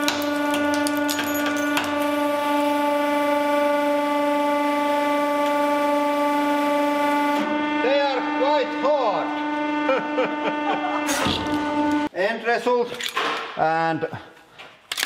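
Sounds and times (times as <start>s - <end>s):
hydraulic press humming: 0.0s - 12.1s.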